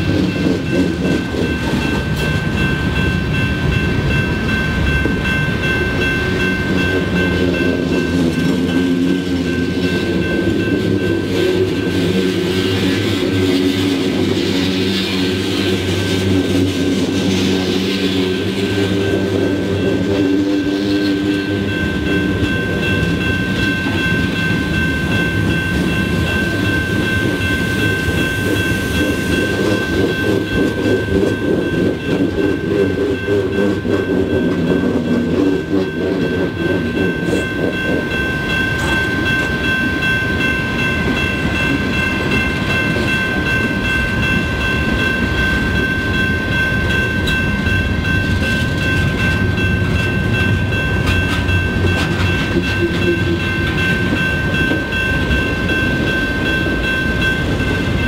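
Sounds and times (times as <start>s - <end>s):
crossing bell ringing: 0.0s - 58.0s
freight train rumbling: 0.0s - 58.0s
wheels clattering over rail joints: 48.1s - 57.3s.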